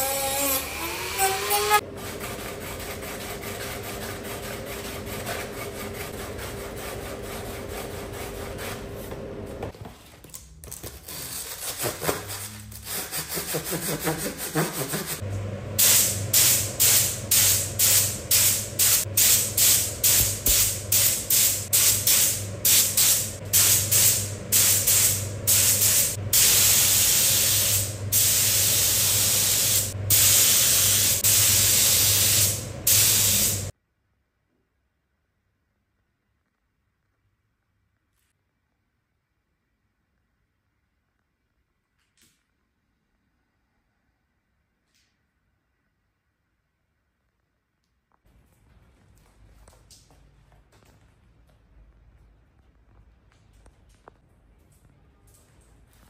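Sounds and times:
sanding pad rubbing: 0:11.4 - 0:15.2
spray gun hissing: 0:15.8 - 0:33.7.

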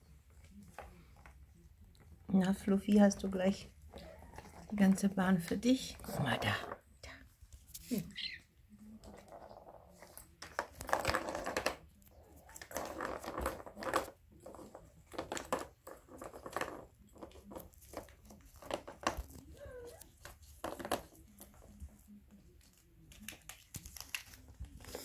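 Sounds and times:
plastic ball rattling in track: 0:12.5 - 0:19.4.

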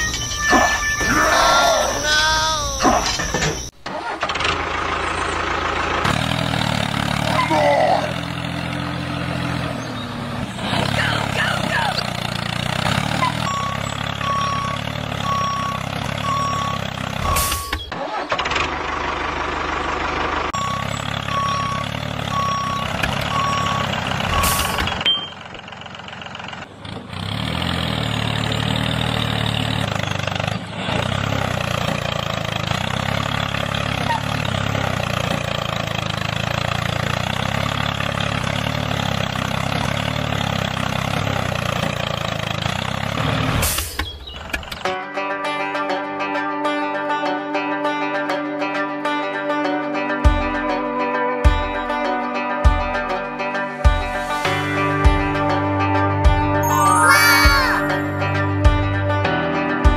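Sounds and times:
reversing alarm beeping: 0:00.0 - 0:02.1, 0:13.4 - 0:17.9, 0:20.6 - 0:25.4
tractor engine running: 0:02.1 - 0:44.8.

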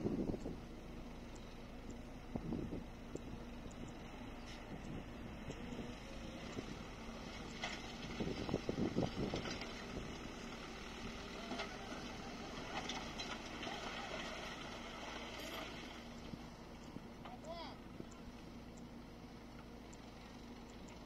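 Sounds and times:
truck engine running: 0:00.0 - 0:21.0
dirt and rock rumbling: 0:04.4 - 0:17.8.

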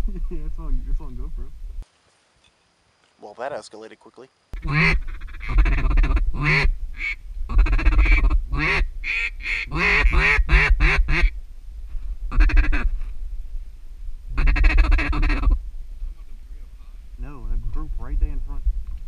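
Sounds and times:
wind rumble on microphone: 0:00.0 - 0:01.8, 0:04.6 - 0:19.0
duck call quacks: 0:04.6 - 0:11.3, 0:12.3 - 0:12.9, 0:14.4 - 0:15.6.

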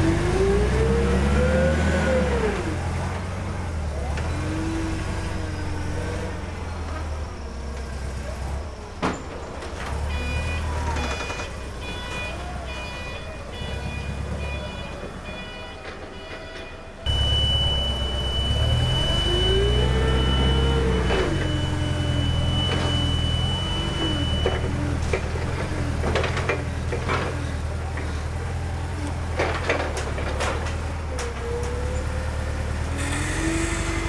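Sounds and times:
forklift engine hum: 0:00.0 - 0:34.0
rising and falling whine: 0:17.1 - 0:24.5
high steady tones: 0:17.1 - 0:24.6.

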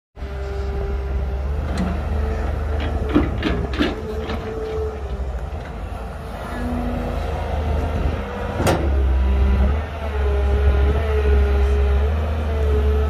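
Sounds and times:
diesel machinery rumbling: 0:00.2 - 0:13.0
knocks and clanks: 0:02.7 - 0:05.8.

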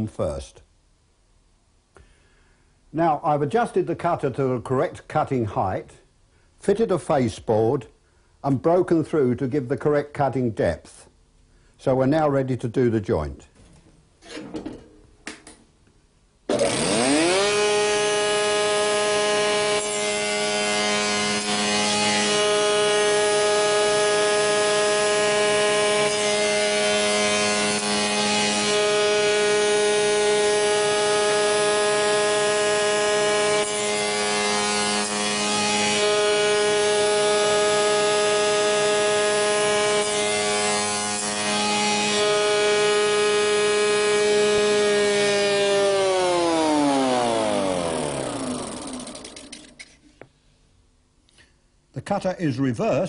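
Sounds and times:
cutter shaping wood: 0:16.5 - 0:50.3
spindle moulder whine: 0:16.5 - 0:50.3.

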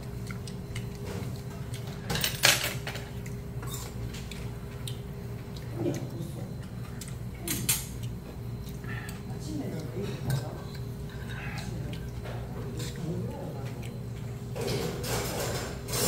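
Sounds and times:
steady low hum: 0:00.0 - 0:16.0
utensils clattering: 0:02.1 - 0:03.1, 0:14.6 - 0:16.0.

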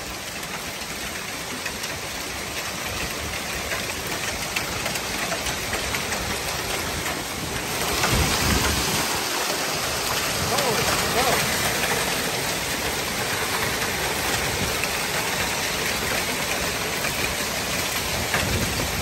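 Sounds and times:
hailstones ticking: 0:00.0 - 0:19.0
heavy rain hissing: 0:00.0 - 0:19.0
wind gust: 0:07.7 - 0:10.5.

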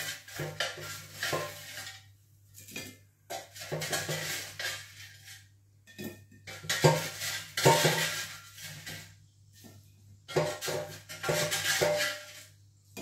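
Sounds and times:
utensil scraping air fryer basket: 0:00.0 - 0:02.1, 0:03.3 - 0:05.5, 0:06.5 - 0:09.2, 0:10.3 - 0:12.6.

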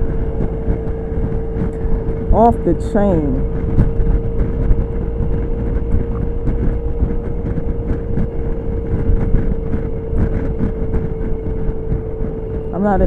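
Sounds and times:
scooter engine and road drone: 0:00.0 - 0:13.0
wind rumbling on microphone: 0:00.0 - 0:13.0.

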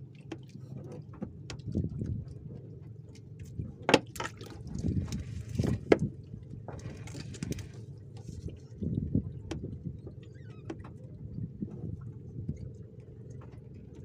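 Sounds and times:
water splashing and dripping: 0:00.0 - 0:14.0
wet fishing net hauled by hand: 0:04.0 - 0:06.0, 0:06.7 - 0:08.4.

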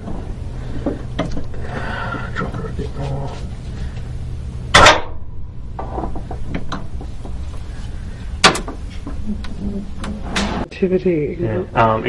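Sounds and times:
sharp metal clanks: 0:04.7 - 0:06.9.

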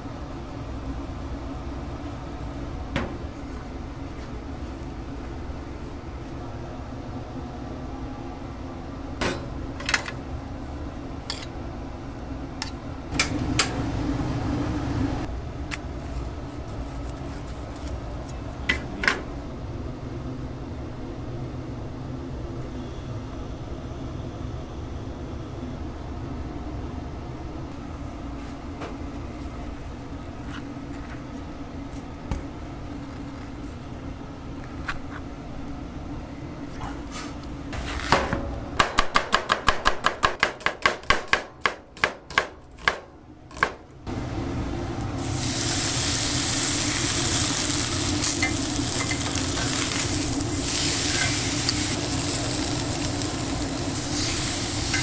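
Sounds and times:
knife chopping on wooden board: 0:38.8 - 0:43.8
fish searing on grill pan: 0:45.2 - 0:55.0.

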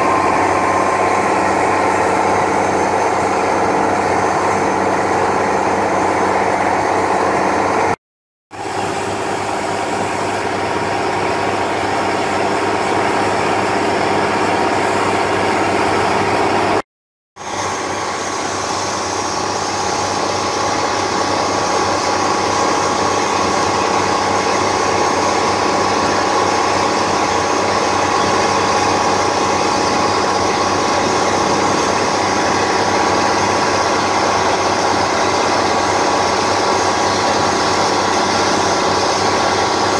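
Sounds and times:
boat engine running: 0:00.0 - 0:16.8, 0:17.4 - 0:39.9
water rushing past hull: 0:17.4 - 0:39.9.

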